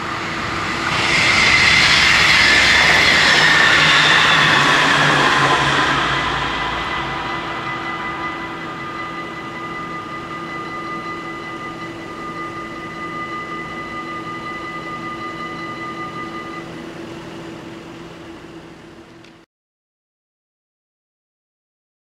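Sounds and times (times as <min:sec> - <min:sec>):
low steady hum: 0:00.0 - 0:19.4
level crossing warning bells: 0:02.4 - 0:17.8.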